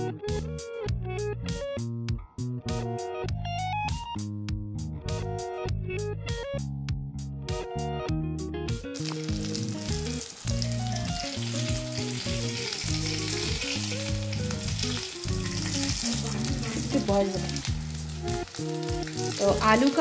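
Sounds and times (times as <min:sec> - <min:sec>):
low background music: 0:00.0 - 0:20.0
fritters sizzling in hot oil: 0:09.0 - 0:20.0.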